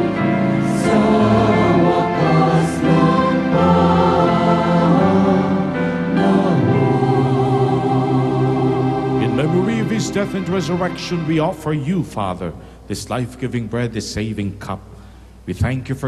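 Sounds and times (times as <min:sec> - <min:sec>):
mixed choir singing: 0:00.0 - 0:11.5
electronic keyboard: 0:00.0 - 0:12.5.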